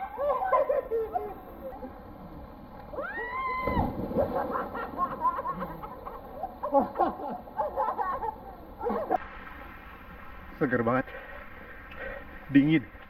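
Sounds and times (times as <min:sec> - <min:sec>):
voices: 0:00.0 - 0:03.0
splash into water: 0:03.5 - 0:05.2.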